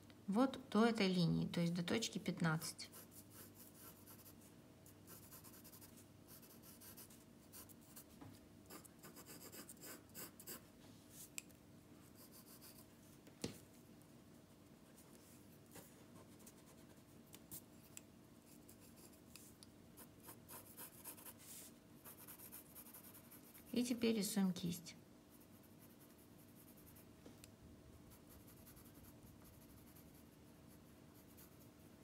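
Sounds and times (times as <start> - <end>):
pencil scratching on paper: 2.9 - 4.5, 5.1 - 8.0, 8.7 - 10.6, 12.1 - 12.8, 20.0 - 23.8, 25.3 - 27.0, 28.1 - 31.7.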